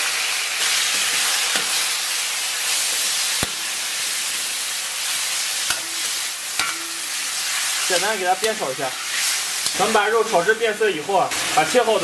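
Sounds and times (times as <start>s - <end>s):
pork sizzling in hot oil: 0.0s - 12.0s
metal spatula knocking wok: 5.7s - 7.1s.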